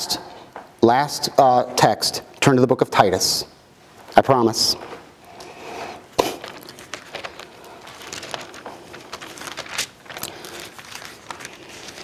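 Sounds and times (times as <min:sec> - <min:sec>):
thin pages rustling: 0:06.2 - 0:12.0.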